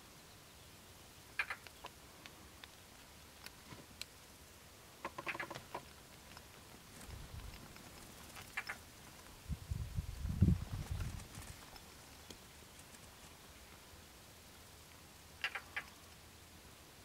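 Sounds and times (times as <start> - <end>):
bird chattering calls: 1.3 - 1.9, 5.0 - 5.8, 8.4 - 8.9, 15.4 - 16.0.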